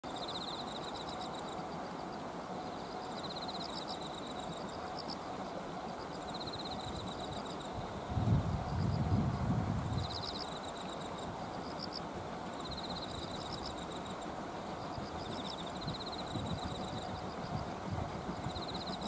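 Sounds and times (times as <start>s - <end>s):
insects calling in pulsed trills: 0.0s - 19.0s
steady outdoor hiss: 0.0s - 19.0s
wind buffeting microphone: 6.9s - 10.4s, 14.9s - 19.0s.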